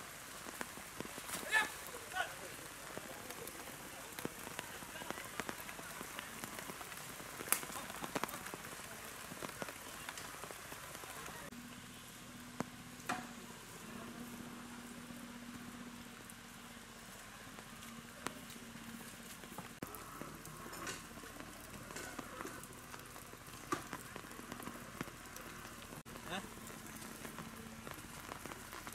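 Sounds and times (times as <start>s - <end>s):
steady rain falling: 0.0s - 28.9s.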